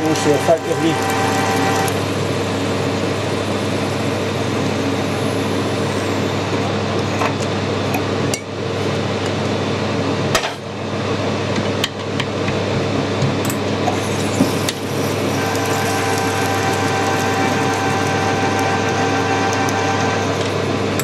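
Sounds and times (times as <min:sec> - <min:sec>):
drill cutting into spinning metal: 0:00.0 - 0:02.0, 0:13.9 - 0:21.0
lathe gear hum: 0:00.0 - 0:07.0, 0:13.7 - 0:21.0.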